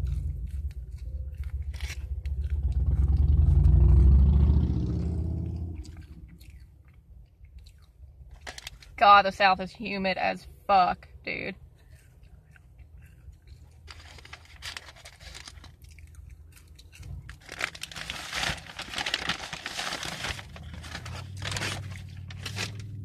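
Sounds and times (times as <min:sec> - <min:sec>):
paper packaging crinkling: 0:01.4 - 0:02.6, 0:08.3 - 0:09.0, 0:13.8 - 0:16.2, 0:16.8 - 0:23.0.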